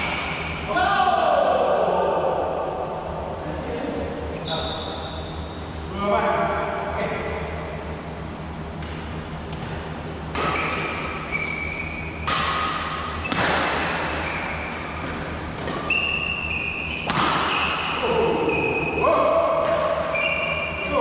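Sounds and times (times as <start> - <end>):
shoes squeaking on court floor: 4.4 - 5.7, 10.4 - 12.3, 14.0 - 17.9, 18.5 - 19.0, 19.6 - 20.9
racket hitting shuttlecock: 10.3 - 11.1, 12.2 - 16.0, 16.9 - 18.0.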